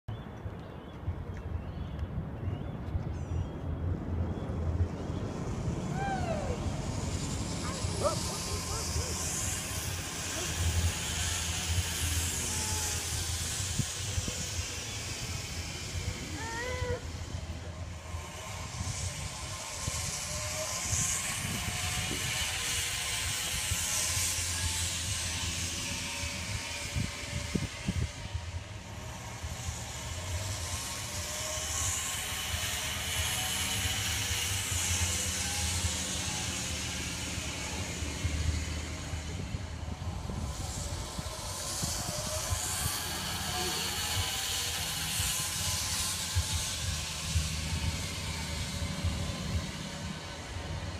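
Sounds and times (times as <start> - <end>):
wind rumble on microphone: 0.1 - 50.9
zipline trolley whirring on cable: 0.1 - 50.9
low rumble: 1.0 - 21.7.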